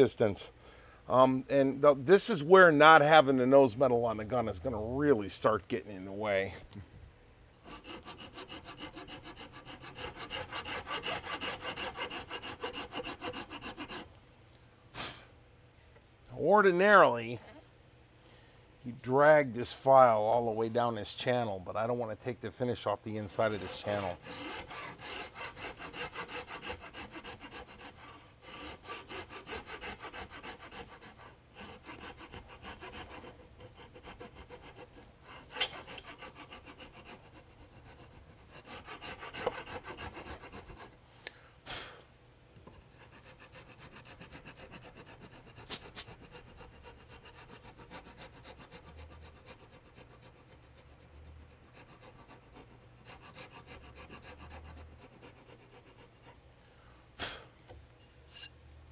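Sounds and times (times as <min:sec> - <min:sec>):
file rasping on wood: 0:07.6 - 0:14.1, 0:23.3 - 0:40.9, 0:42.8 - 0:56.4.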